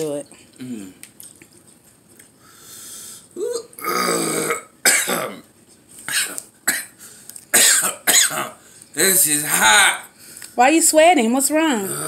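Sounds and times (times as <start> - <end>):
heavy breathing: 2.4 - 3.4
man burping loudly: 3.6 - 5.4.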